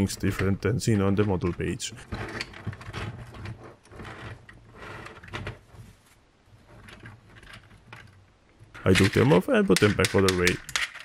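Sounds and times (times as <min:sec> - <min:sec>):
light plastic scraping: 0:00.0 - 0:11.0
plastic parts clicking: 0:06.7 - 0:11.0.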